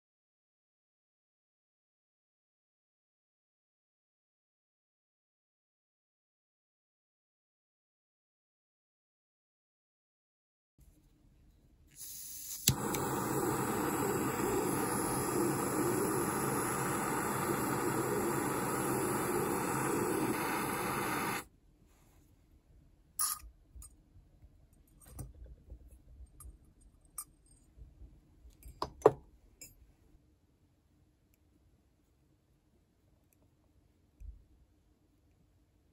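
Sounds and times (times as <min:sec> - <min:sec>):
gas torch hissing: 0:12.0 - 0:21.5
torch igniter click: 0:12.0 - 0:21.5.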